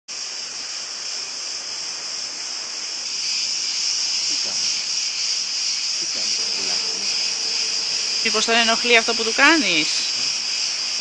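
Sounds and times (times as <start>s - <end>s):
high-pitched insects buzzing: 3.2s - 11.0s.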